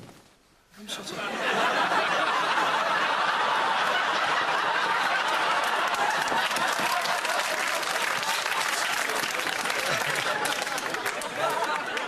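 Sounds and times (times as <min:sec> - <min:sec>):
audience laughing: 0:00.9 - 0:12.0
audience clapping: 0:01.8 - 0:12.0.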